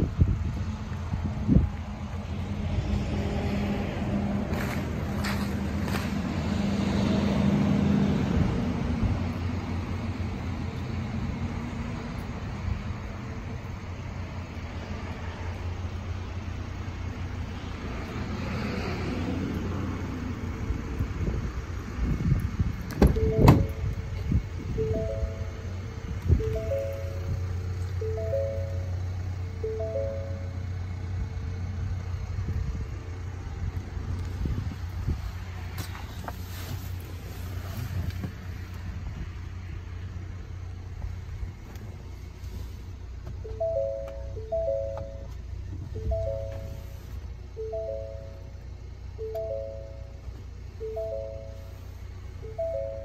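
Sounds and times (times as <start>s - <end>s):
steady low rumble: 0.0s - 6.4s, 20.1s - 53.0s
car engine idling: 9.0s - 18.3s, 19.5s - 53.0s
car door latch clicks: 22.9s - 23.8s
car door latch clunk: 23.0s - 23.8s.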